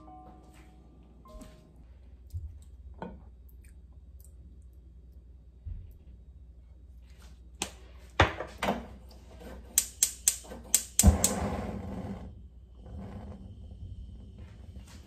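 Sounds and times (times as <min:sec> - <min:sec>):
gas hob igniter clicking: 0:09.7 - 0:11.5.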